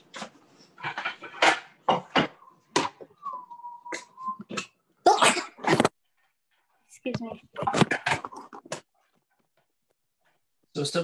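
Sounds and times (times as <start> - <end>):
plates and utensils clattering: 0.2 - 2.4.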